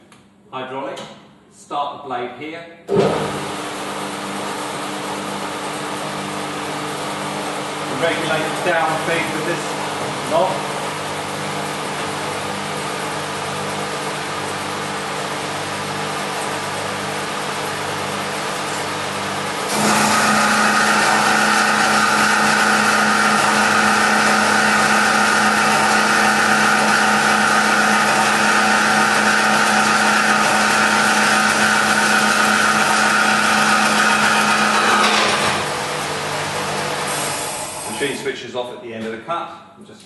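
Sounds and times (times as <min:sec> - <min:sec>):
metal-cutting bandsaw whine: 0:19.6 - 0:38.3.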